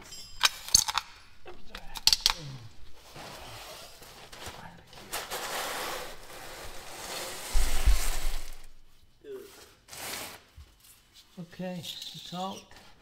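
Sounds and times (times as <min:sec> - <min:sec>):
metal parts scraping and rubbing: 0:00.0 - 0:01.1, 0:11.7 - 0:12.7.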